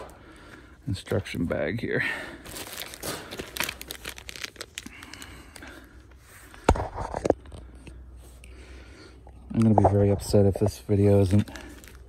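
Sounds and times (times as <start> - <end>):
plastic bags crinkling: 2.2 - 6.2, 11.0 - 12.0.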